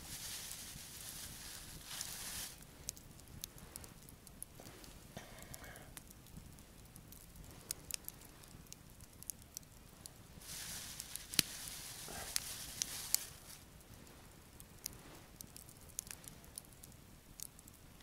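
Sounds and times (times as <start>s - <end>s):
plastic bag rustling: 0.0s - 2.6s, 10.4s - 13.6s
campfire crackling and popping: 0.0s - 18.0s.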